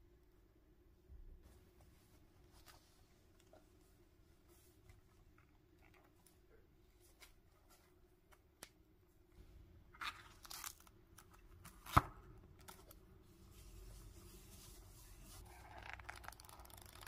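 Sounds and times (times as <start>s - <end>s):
notebook pages rustling: 10.0s - 17.0s.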